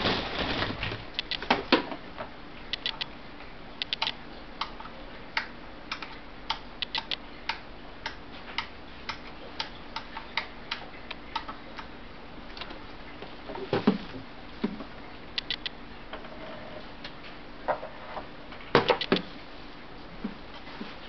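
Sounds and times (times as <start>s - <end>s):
faint steady hum: 0.0s - 21.0s
sharp irregular clicks: 1.2s - 1.5s, 2.7s - 3.1s, 3.8s - 4.8s, 5.4s - 11.9s, 15.4s - 15.8s, 18.9s - 19.2s.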